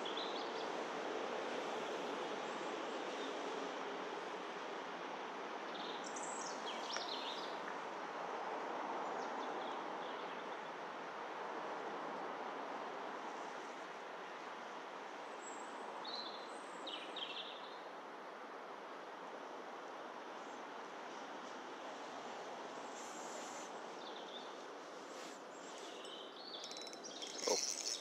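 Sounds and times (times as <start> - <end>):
outdoor background hiss: 0.0 - 28.0
small birds chirping: 24.0 - 28.0.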